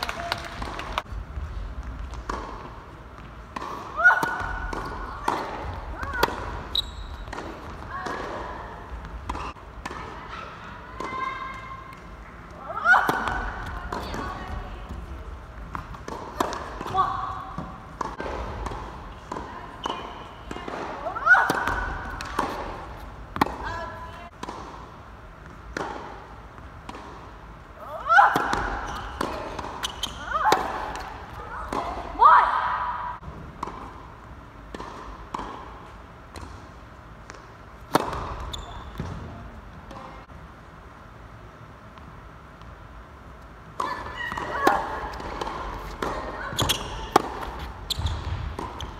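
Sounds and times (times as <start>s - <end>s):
tennis ball bouncing on court: 0.3s - 40.3s, 43.6s - 48.9s
racket hitting ball: 1.9s - 12.2s, 12.9s - 27.5s, 28.1s - 39.3s, 43.8s - 48.9s
shoe squeal: 6.7s - 7.3s, 28.7s - 29.2s, 29.8s - 30.5s, 38.4s - 39.0s, 46.4s - 48.9s.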